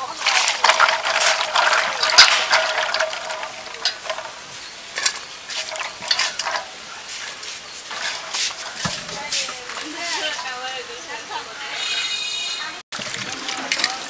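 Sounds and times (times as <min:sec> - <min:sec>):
seeds swished in water in steel bowl: 0:00.0 - 0:11.1.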